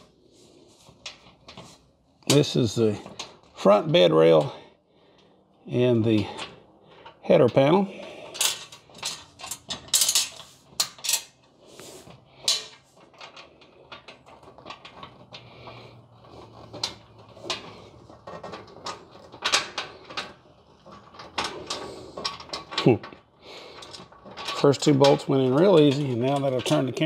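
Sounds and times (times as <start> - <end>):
metal parts clinking and rattling: 6.0 - 11.5, 12.1 - 27.0
metal clatter: 6.2 - 11.5, 12.3 - 27.0.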